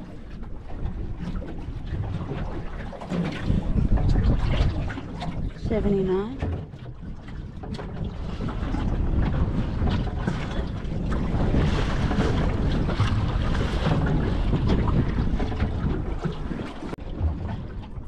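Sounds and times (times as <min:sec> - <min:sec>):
sea washing around boat: 0:00.0 - 0:18.0
wind buffeting microphone: 0:00.0 - 0:18.0.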